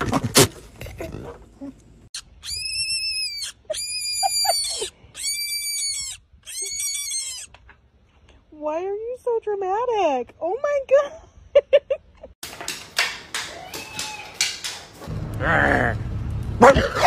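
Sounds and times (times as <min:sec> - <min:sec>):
baby rabbit screaming: 0:02.2 - 0:07.6.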